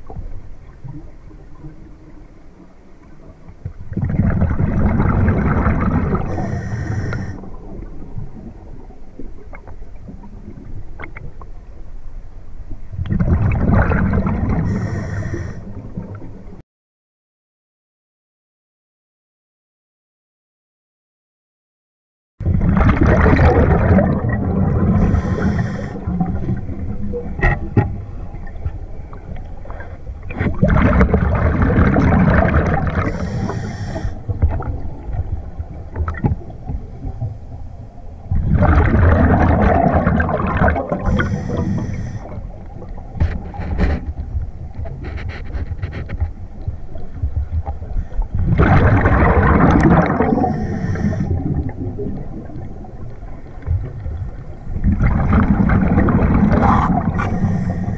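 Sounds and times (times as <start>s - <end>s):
diver exhaling bubbles: 3.9s - 8.4s, 13.1s - 16.2s, 22.4s - 27.7s, 30.4s - 35.0s, 38.3s - 44.1s, 47.8s - 53.1s, 54.8s - 57.9s
regulator hiss: 6.3s - 7.4s, 14.7s - 15.6s, 25.0s - 26.0s, 33.2s - 34.1s, 41.1s - 42.3s, 57.3s - 57.9s.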